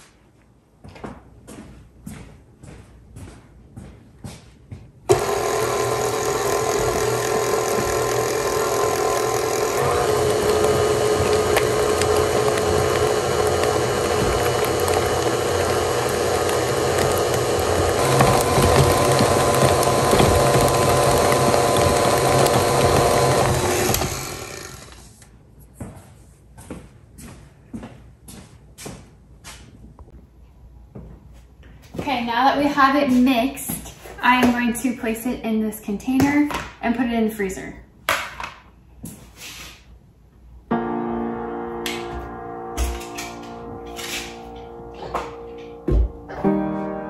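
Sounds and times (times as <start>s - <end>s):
stand mixer motor whining: 5.1s - 25.2s.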